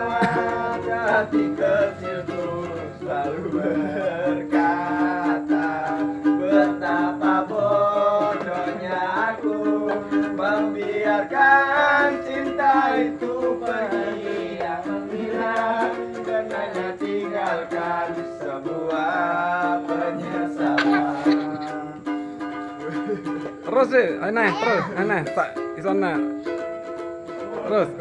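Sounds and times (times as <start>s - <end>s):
young men singing: 0.0s - 22.2s
ukulele strumming: 0.0s - 28.0s.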